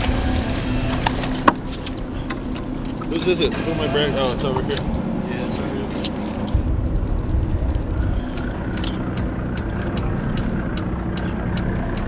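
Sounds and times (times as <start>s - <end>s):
boat engine droning: 0.0s - 12.0s
wind buffeting microphone: 4.4s - 10.9s.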